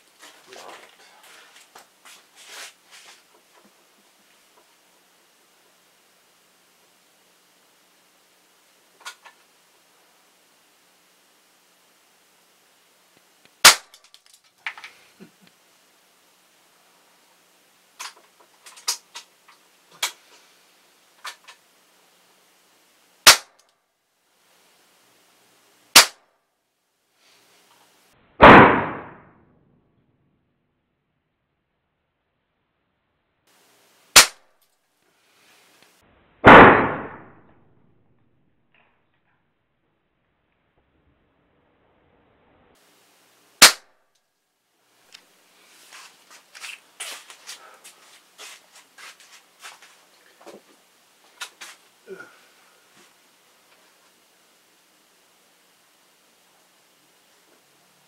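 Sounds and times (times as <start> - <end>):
loud air rifle blast: 13.6 - 14.0, 23.2 - 23.6, 26.0 - 26.2, 28.4 - 29.2, 34.2 - 34.4, 36.4 - 37.3, 43.6 - 43.9
air rifle cracks: 13.6 - 14.9, 23.2 - 23.7, 26.0 - 26.2, 34.2 - 34.4, 43.6 - 43.9.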